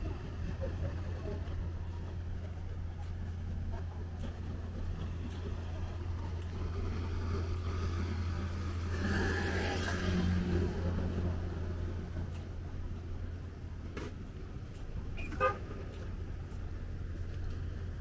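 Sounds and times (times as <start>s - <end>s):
low traffic rumble: 0.0s - 18.0s
motor scooter passing: 6.8s - 12.3s.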